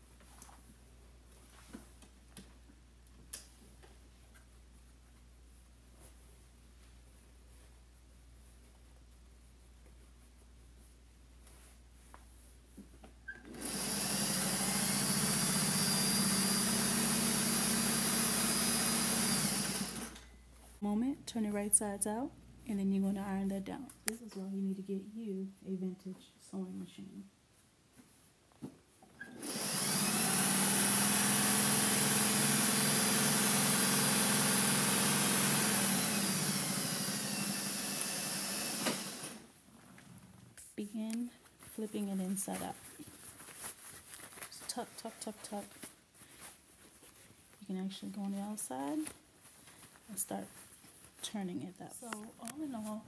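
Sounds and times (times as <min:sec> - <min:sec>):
sewing machine running: 0:13.5 - 0:20.2, 0:29.4 - 0:39.5.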